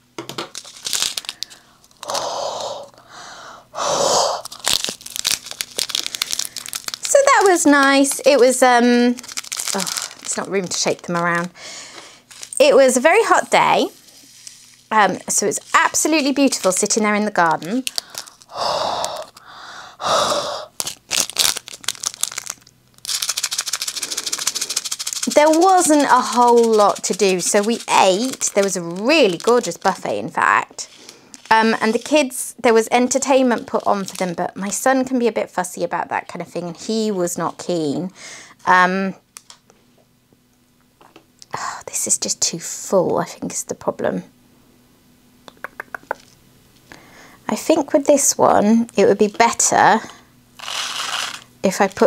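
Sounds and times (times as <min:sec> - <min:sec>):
plastic bag crinkling: 0:00.4 - 0:02.2, 0:04.4 - 0:19.5, 0:20.7 - 0:35.1, 0:50.6 - 0:52.0
beads rattling in bag: 0:00.5 - 0:02.2, 0:04.4 - 0:11.5, 0:12.3 - 0:19.5, 0:20.8 - 0:30.2, 0:31.4 - 0:32.4, 0:33.0 - 0:34.8, 0:50.6 - 0:51.5
breath blown into bag: 0:01.2 - 0:04.7, 0:17.9 - 0:20.8
breath blown into plastic bag: 0:17.9 - 0:20.9, 0:23.9 - 0:25.0.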